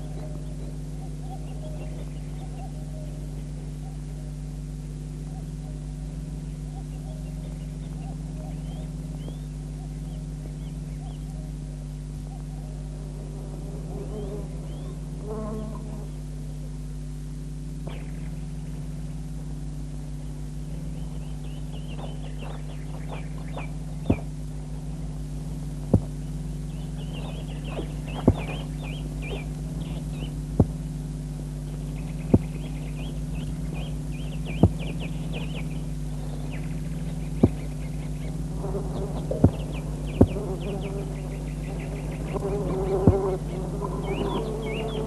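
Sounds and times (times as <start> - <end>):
steady electrical hum: 0.0 - 45.0.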